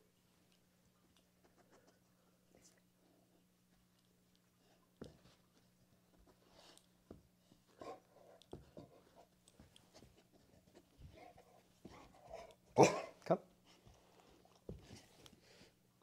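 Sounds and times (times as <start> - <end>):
soft shuffling: 1.3 - 12.8, 13.5 - 15.8
dog barking: 12.3 - 13.2.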